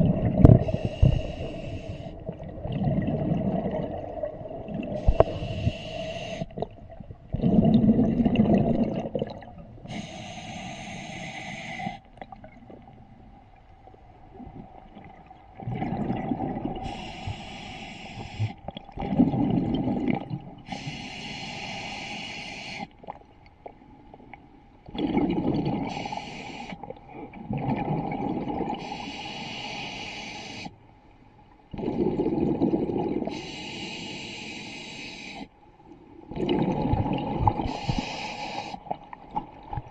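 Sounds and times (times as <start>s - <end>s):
exhaled bubbles gurgling underwater: 0.0s - 30.7s, 31.7s - 39.9s
regulator hissing on inhale: 0.6s - 2.2s, 5.0s - 6.5s, 9.9s - 12.1s, 16.8s - 18.6s, 20.7s - 23.0s, 25.9s - 26.8s, 28.8s - 30.8s, 33.3s - 35.5s, 37.6s - 38.9s.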